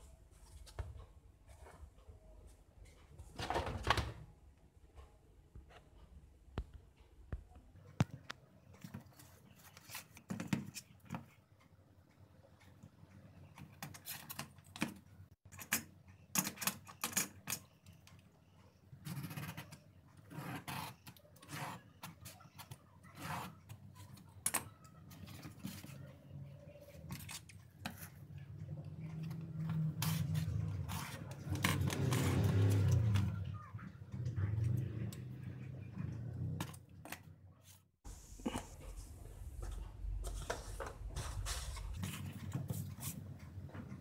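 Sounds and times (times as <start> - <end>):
small parts clicking and tapping: 7.9 - 20.2
marker pen scratching on cardboard: 19.0 - 24.1, 29.3 - 32.8.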